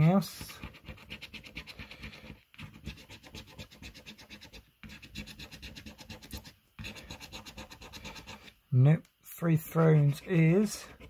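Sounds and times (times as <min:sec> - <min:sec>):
coin scratching a scratchcard: 0:00.3 - 0:08.6.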